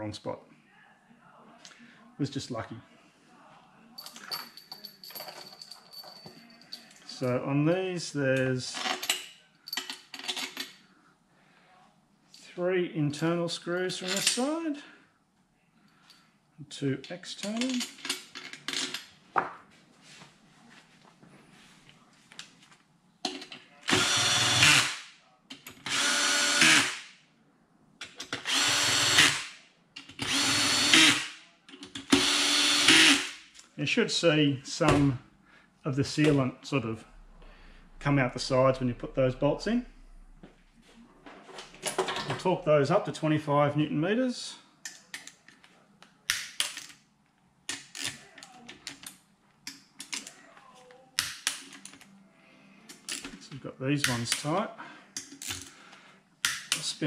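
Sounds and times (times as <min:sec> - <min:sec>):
cordless drill motor whine: 0:23.9 - 0:24.9, 0:25.9 - 0:26.8, 0:28.5 - 0:29.4, 0:30.2 - 0:31.2, 0:32.1 - 0:33.2
drill bit clicking on screw: 0:28.4 - 0:29.4.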